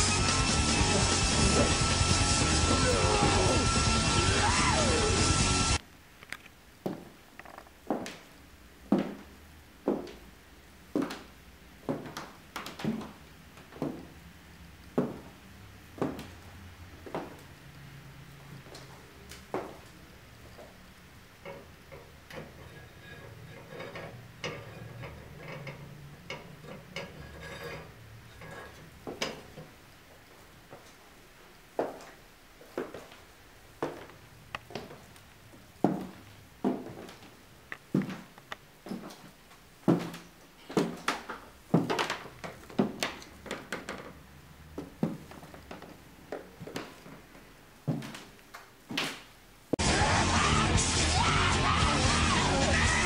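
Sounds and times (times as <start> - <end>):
heeled footsteps on tiled floor: 6.8 - 14.2, 14.8 - 17.6, 18.4 - 20.8, 31.7 - 49.4.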